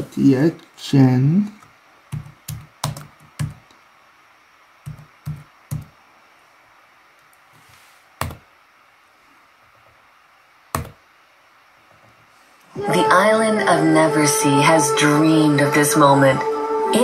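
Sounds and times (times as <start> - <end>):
laptop keys clicking: 2.1 - 3.6, 4.8 - 5.9, 10.7 - 11.0.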